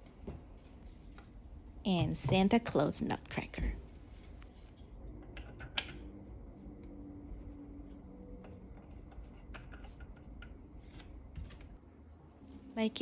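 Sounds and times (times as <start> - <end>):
wooden pieces clicking and tapping: 8.8 - 10.6.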